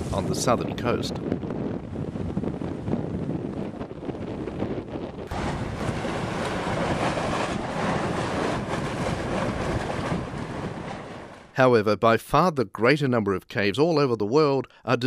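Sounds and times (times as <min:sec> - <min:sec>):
wind on microphone: 0:00.0 - 0:11.5
surf washing into a sea cave: 0:05.3 - 0:11.6.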